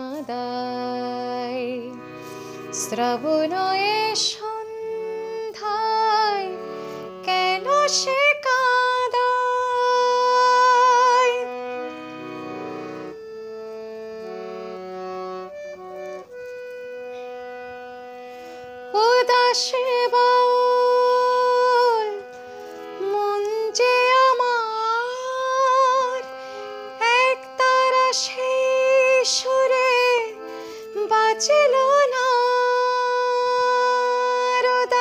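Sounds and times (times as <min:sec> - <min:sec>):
instrumental accompaniment: 0:00.0 - 0:35.0
woman singing long held notes: 0:18.9 - 0:22.3.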